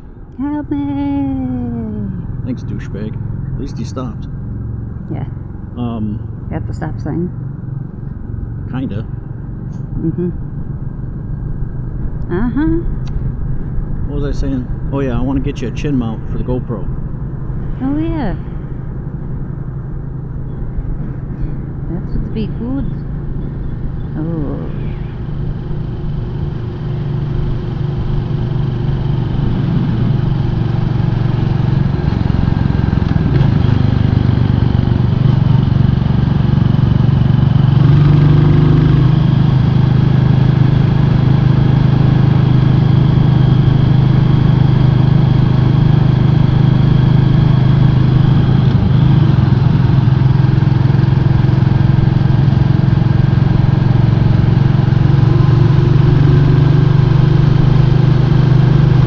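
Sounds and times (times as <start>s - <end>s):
motorcycle engine running: 0.0s - 59.0s
rush of riding noise: 13.0s - 59.0s.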